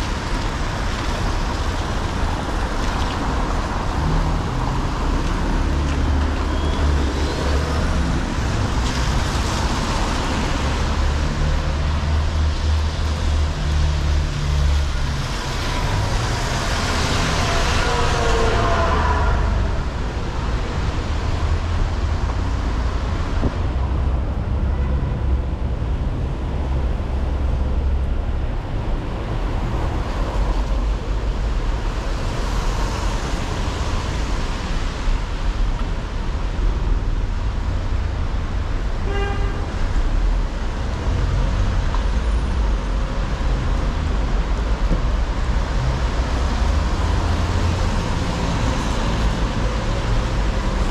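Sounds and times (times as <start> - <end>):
low traffic rumble: 0.0 - 50.9
vehicles passing with tyre noise: 0.0 - 50.9.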